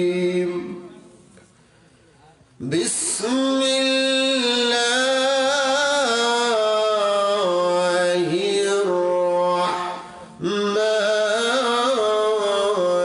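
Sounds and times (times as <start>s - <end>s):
man chanting into a microphone: 0.0s - 1.2s, 2.6s - 13.0s.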